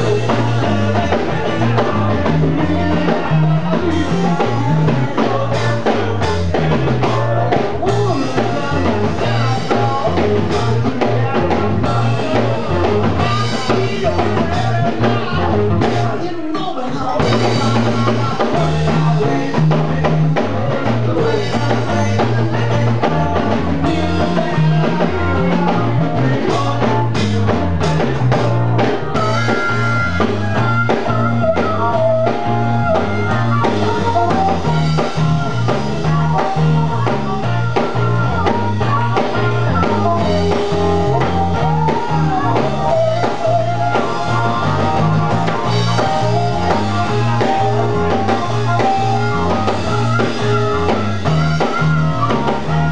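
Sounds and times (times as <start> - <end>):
bass guitar: 0.0 - 52.9
drum kit: 0.0 - 52.9
electric guitar: 0.0 - 52.9
harmonica: 29.1 - 52.9.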